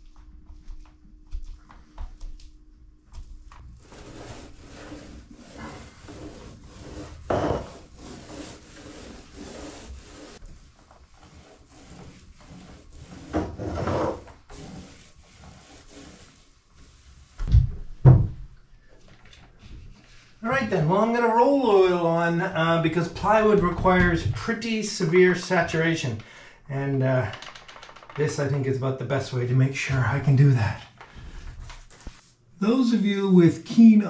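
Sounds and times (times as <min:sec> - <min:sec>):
paintbrush stroking on wood: 0:03.8 - 0:13.5, 0:14.2 - 0:17.3.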